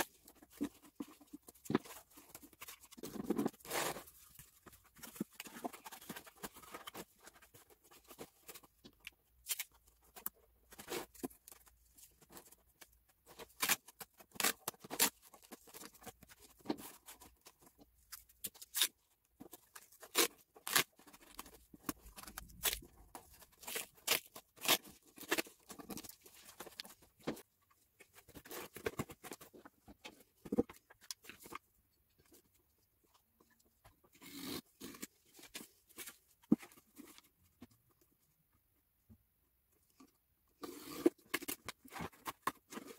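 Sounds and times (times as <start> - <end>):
cardboard crackling and rustling: 0.0 - 31.6.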